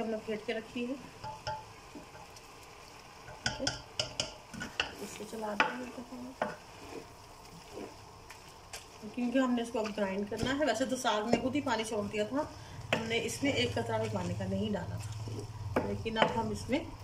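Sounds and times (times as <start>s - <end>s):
spoon knocking and scraping pot: 1.2s - 2.3s, 3.2s - 5.0s, 5.6s - 7.9s, 9.8s - 11.6s, 12.9s - 14.3s, 15.0s - 16.8s
spoon stirring thick food: 6.4s - 11.6s, 12.8s - 16.6s.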